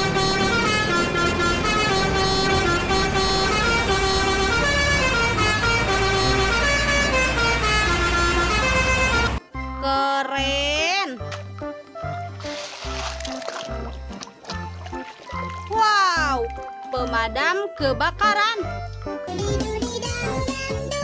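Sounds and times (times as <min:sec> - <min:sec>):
low engine rumble: 0:00.0 - 0:09.4
multi-tone truck horns playing melody: 0:00.0 - 0:09.6.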